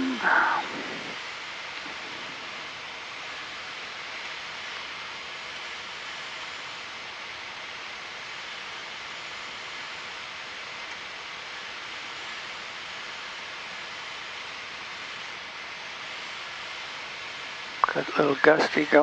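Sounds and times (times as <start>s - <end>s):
aircraft cockpit noise: 0.0s - 7.4s, 15.0s - 19.0s.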